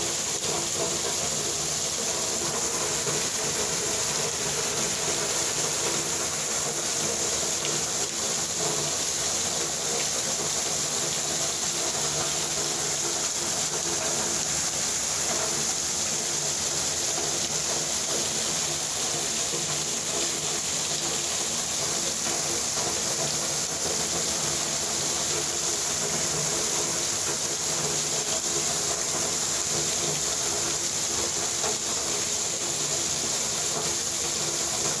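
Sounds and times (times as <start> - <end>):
heavy rain pouring: 0.0 - 35.0.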